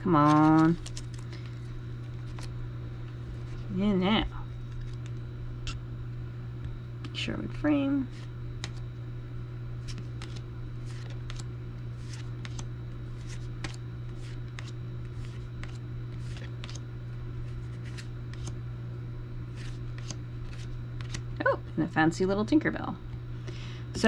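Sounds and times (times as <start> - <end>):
steady low hum: 0.0 - 24.0
cards swishing and clicking: 8.1 - 8.8, 9.8 - 16.8, 17.4 - 18.6, 19.5 - 21.3.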